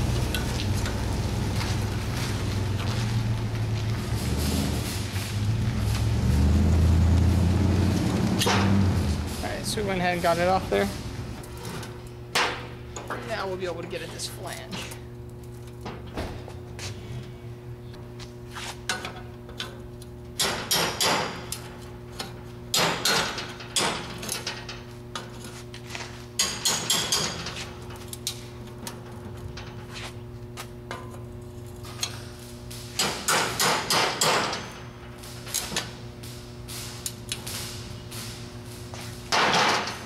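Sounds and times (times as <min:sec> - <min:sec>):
steady low hum: 0:00.0 - 0:40.0
hammer striking metal pipe: 0:20.4 - 0:21.5, 0:22.7 - 0:24.0, 0:26.4 - 0:27.4, 0:33.0 - 0:34.8.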